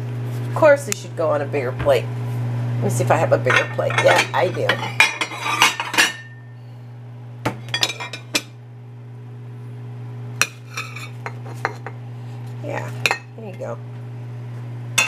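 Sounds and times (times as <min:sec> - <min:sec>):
ceramic plates clinking: 0:03.4 - 0:06.4, 0:07.8 - 0:08.5.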